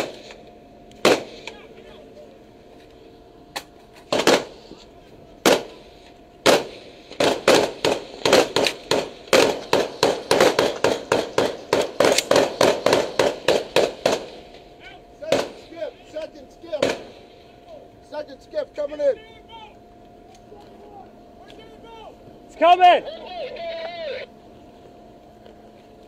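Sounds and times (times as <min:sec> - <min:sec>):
rifle shots: 0:00.0 - 0:00.4, 0:01.0 - 0:01.6, 0:04.1 - 0:04.6, 0:05.4 - 0:05.8, 0:06.4 - 0:14.6, 0:15.2 - 0:15.8, 0:16.8 - 0:17.4.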